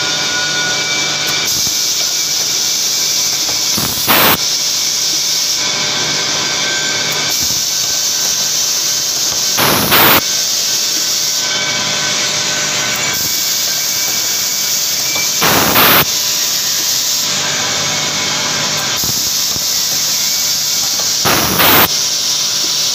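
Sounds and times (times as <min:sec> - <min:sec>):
filling machine running: 0:00.0 - 0:22.9
pneumatic air hiss: 0:01.3 - 0:05.7, 0:07.2 - 0:11.6, 0:12.9 - 0:17.5, 0:18.8 - 0:22.9.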